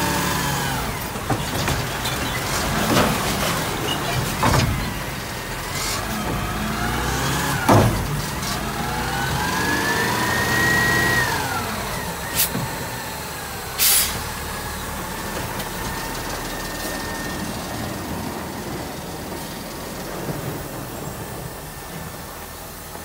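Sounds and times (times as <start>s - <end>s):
hydraulic whine: 0.0s - 23.0s
truck engine revving: 0.0s - 23.0s
short hiss: 12.3s - 12.6s, 13.8s - 14.3s.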